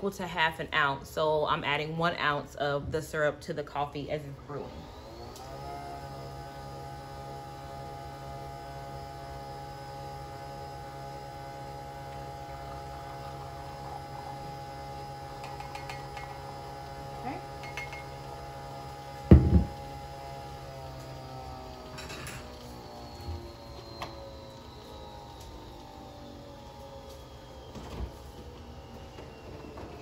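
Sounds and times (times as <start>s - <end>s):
coffee machine motor humming: 4.5s - 30.0s
loud thump: 19.3s - 19.8s.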